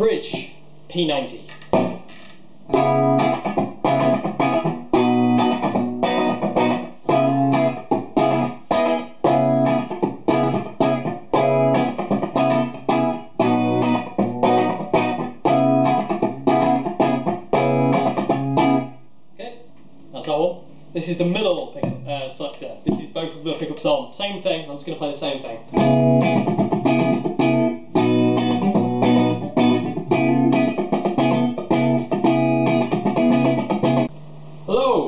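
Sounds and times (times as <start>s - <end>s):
electric guitar riff: 1.7s - 19.0s, 25.7s - 34.1s.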